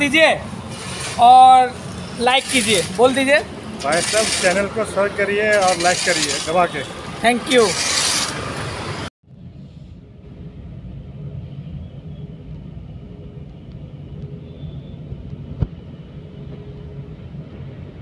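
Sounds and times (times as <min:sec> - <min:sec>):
roadside traffic: 0:00.0 - 0:18.0.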